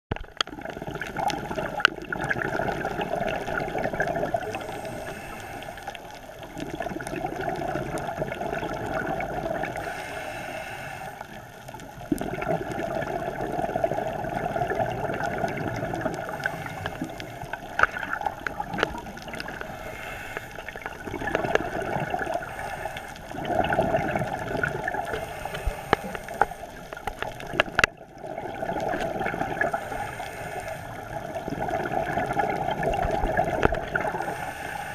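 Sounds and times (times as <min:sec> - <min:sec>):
exhaled bubbles gurgling: 0:00.1 - 0:34.9
faint clicks: 0:15.2 - 0:22.0, 0:24.1 - 0:28.1.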